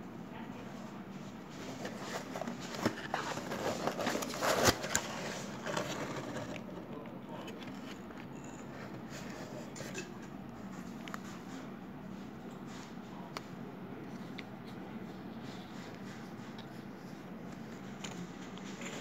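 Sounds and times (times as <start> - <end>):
cardboard box scraping and crackling: 1.7 - 6.8.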